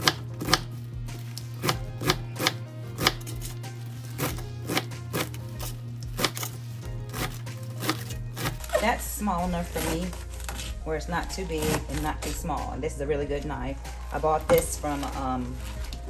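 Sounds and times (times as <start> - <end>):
knife chopping greens on board: 0.0 - 0.7, 1.5 - 3.3, 4.1 - 6.5, 7.1 - 8.8.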